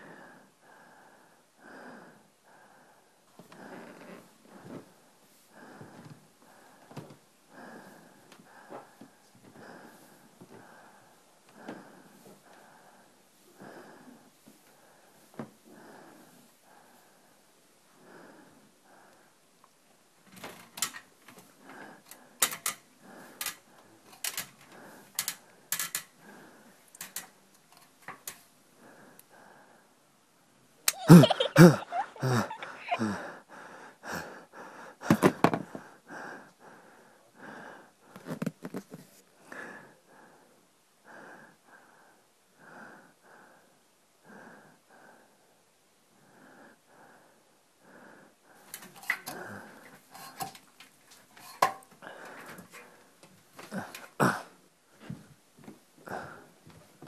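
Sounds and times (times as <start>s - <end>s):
person breathing hard: 0.0s - 19.4s, 20.4s - 30.0s, 30.9s - 38.4s, 39.4s - 55.3s, 56.0s - 56.8s
voiced outburst: 30.9s - 33.3s.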